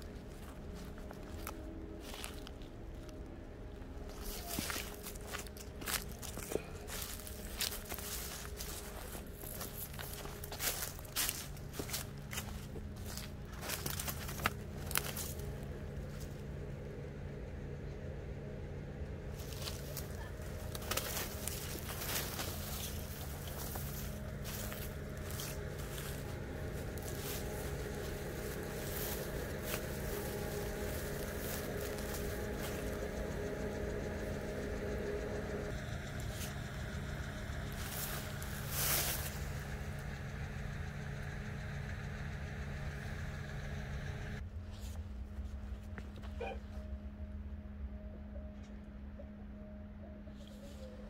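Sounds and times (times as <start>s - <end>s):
footsteps crunching on dry ground: 0.0s - 16.6s, 19.3s - 40.4s
high steady tone: 0.0s - 44.4s
steady low hum: 0.0s - 51.0s.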